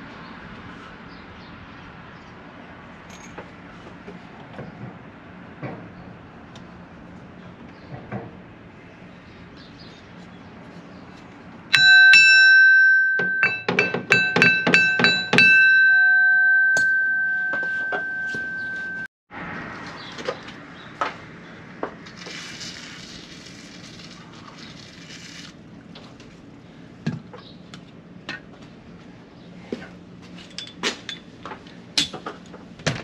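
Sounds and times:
hammer ringing on steel: 11.7s - 19.1s.

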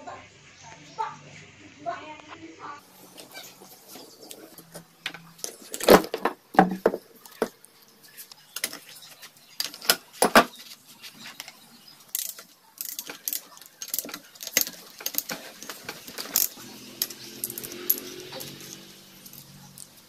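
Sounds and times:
metal tools clinking: 2.9s - 10.6s, 11.2s - 20.0s
ratchet wrench clicks: 16.2s - 20.0s.

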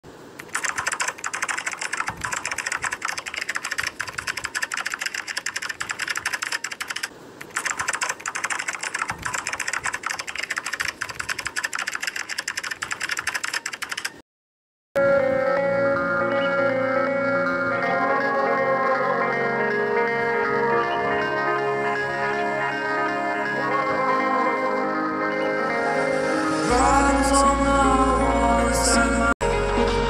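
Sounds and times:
computer keyboard typing: 0.4s - 14.2s.

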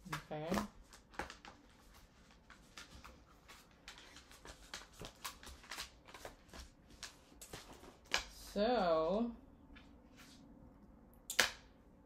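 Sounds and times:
paper rustling: 0.1s - 8.2s.

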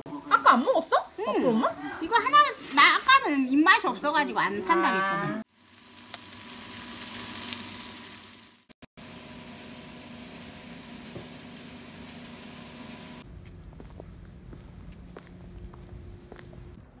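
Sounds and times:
fish sizzling in a frying pan: 5.5s - 13.2s.

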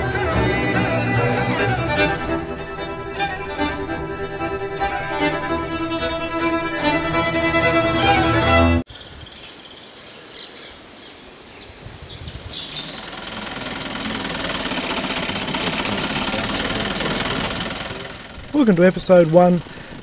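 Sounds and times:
truck driving on dirt road: 0.0s - 8.6s, 12.6s - 20.0s
bird chirps: 8.9s - 13.2s.

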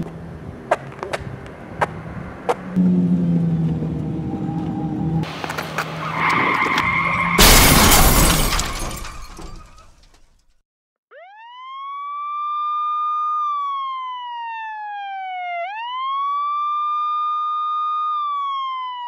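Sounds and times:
siren wailing: 2.8s - 5.3s, 11.1s - 19.0s.

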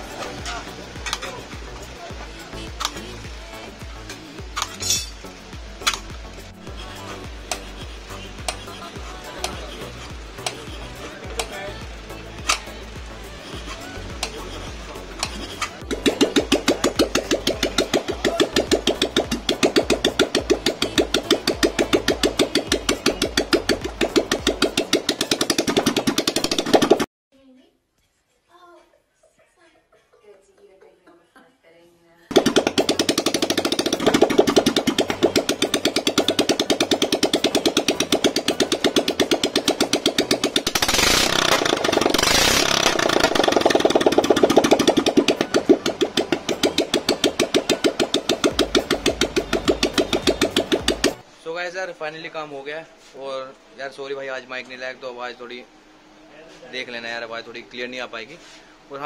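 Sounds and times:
motorcycle engine idling: 5.8s - 27.0s, 32.3s - 51.2s.

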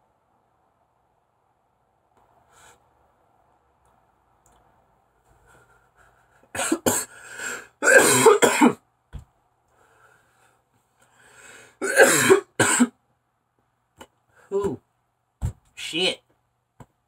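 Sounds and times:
man coughing hard: 6.5s - 7.2s, 7.8s - 8.8s, 11.8s - 13.0s.

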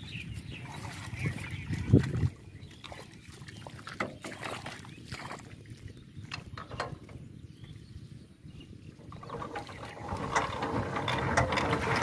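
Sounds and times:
hand crank metallic clicks and rattles: 9.2s - 12.0s.

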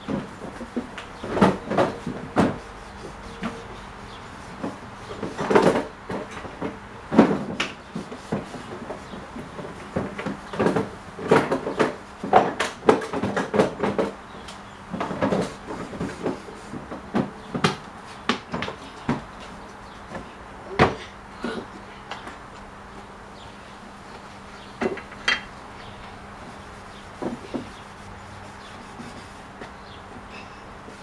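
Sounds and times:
cloth rubbing on wood: 26.3s - 29.8s.

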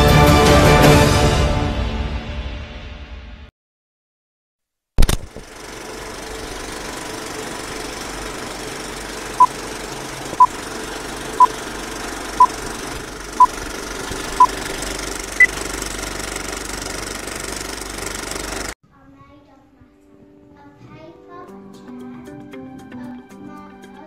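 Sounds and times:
sharp click: 5.0s - 5.5s
film projector whirring: 5.0s - 18.8s.

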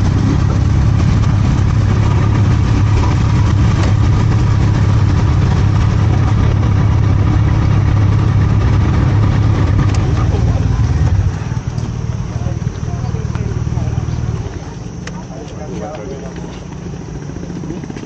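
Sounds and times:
motorcycle engine idling: 0.0s - 18.0s.

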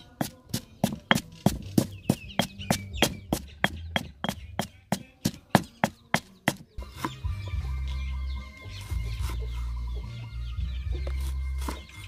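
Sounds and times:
stone pestle pounding in mortar: 0.0s - 7.2s.

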